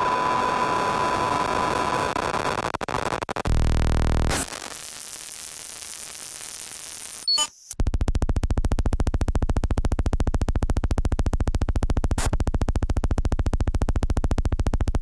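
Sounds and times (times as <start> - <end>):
fast pulsing electronic buzz: 3.4 - 15.0.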